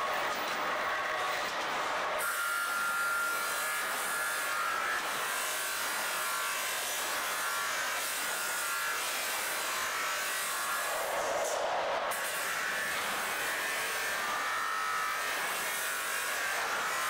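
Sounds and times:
power tool grinding steel: 2.1 - 17.0.

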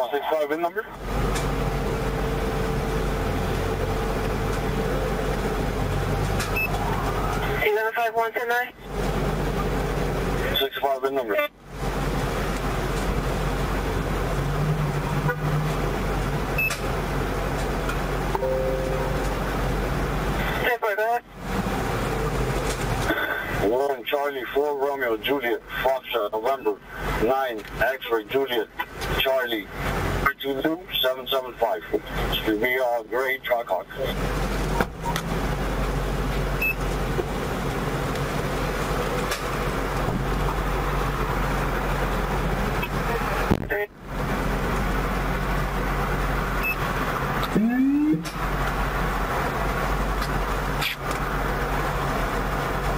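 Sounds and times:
low engine hum: 0.0 - 7.7, 8.7 - 52.9
road traffic rushing: 0.0 - 52.9
low drone: 18.3 - 20.6.

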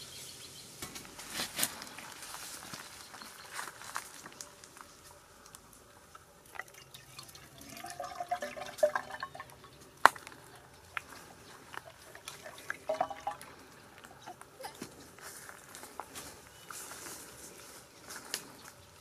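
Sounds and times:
water splashing and trickling: 6.2 - 14.8.

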